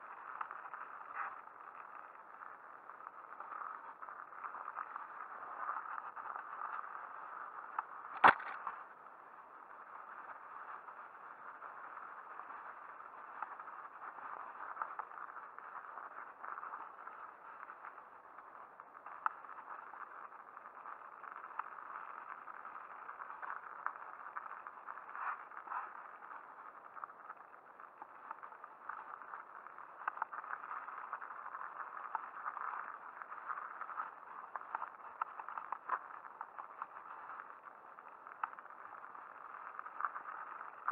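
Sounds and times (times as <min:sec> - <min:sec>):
bike tyres rolling on snow: 0:00.0 - 0:40.9.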